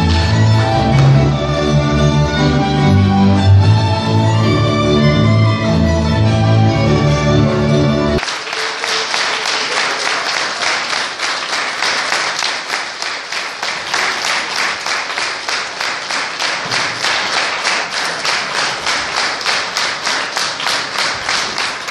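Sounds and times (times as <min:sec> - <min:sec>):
audience clapping in rhythm: 0:00.0 - 0:03.6, 0:08.1 - 0:21.9.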